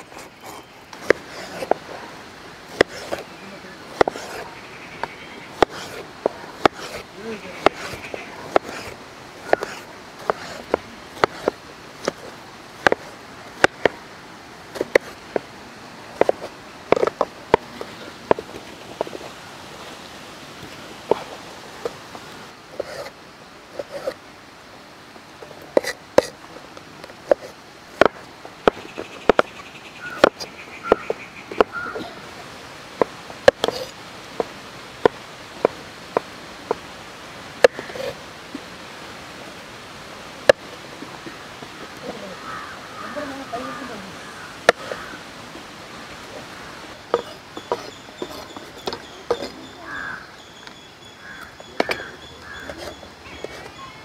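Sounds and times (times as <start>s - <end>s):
steady hiss: 0.0s - 54.0s
knife chopping on wooden board: 3.9s - 4.4s, 7.6s - 12.2s.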